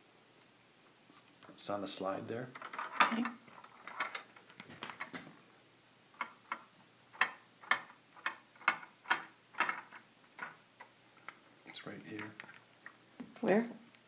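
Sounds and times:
ball rolling in plastic maze clicking: 0:02.6 - 0:05.1, 0:06.2 - 0:11.4.

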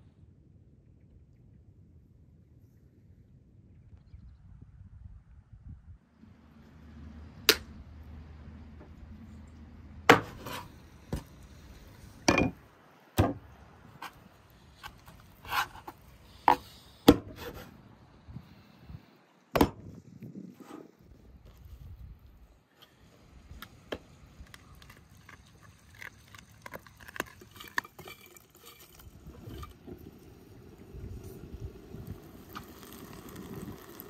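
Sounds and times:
knife chopping on wooden board: 0:10.1 - 0:11.2.

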